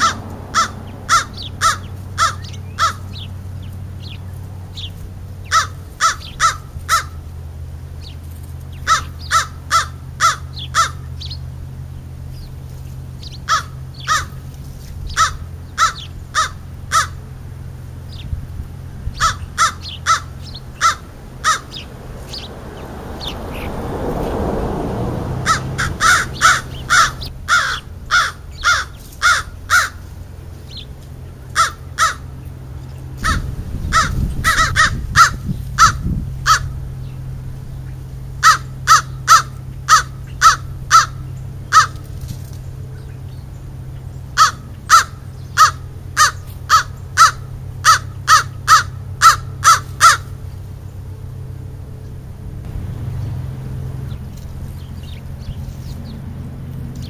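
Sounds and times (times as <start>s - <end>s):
crow cawing: 0.0s - 3.1s, 5.5s - 7.2s, 8.9s - 11.1s, 13.5s - 14.4s, 15.2s - 17.2s, 19.2s - 21.9s, 25.4s - 30.0s, 31.5s - 32.4s, 33.2s - 36.7s, 38.4s - 42.0s, 44.4s - 50.3s
steady low hum: 0.0s - 57.0s.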